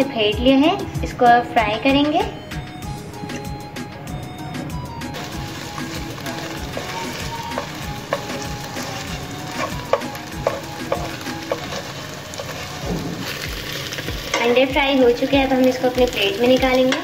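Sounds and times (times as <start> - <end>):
eggs sizzling in oil: 5.1 - 17.0
spatula tapping pan: 5.2 - 14.6, 15.9 - 17.0.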